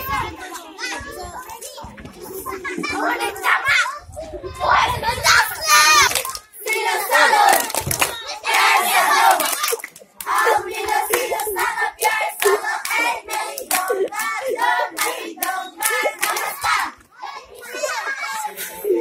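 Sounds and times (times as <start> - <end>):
children singing a chanted song: 0.0 - 19.0
children clapping in rhythm: 5.8 - 17.0.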